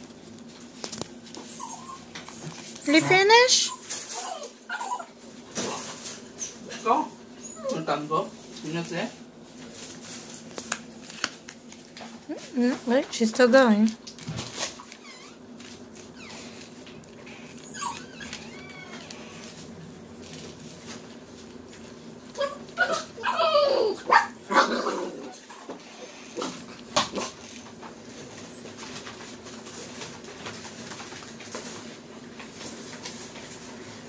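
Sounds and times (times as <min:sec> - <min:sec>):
small dog whining: 0:01.4 - 0:08.0, 0:14.8 - 0:15.4, 0:16.0 - 0:19.6, 0:21.6 - 0:26.1.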